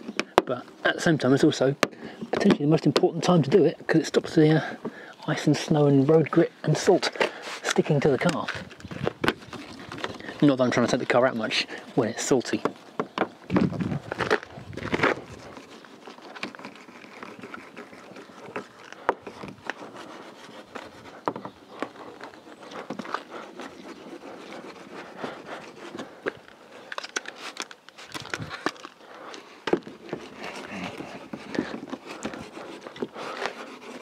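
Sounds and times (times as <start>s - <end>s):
clay bar rubbing on car paint: 15.0s - 26.2s, 29.9s - 34.0s.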